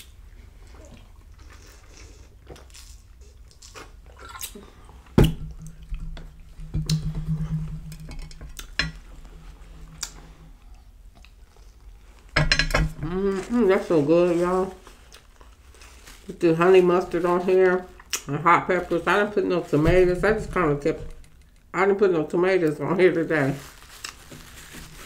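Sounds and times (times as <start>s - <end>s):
low steady hum: 0.0s - 25.0s
sharp knock: 6.6s - 8.4s.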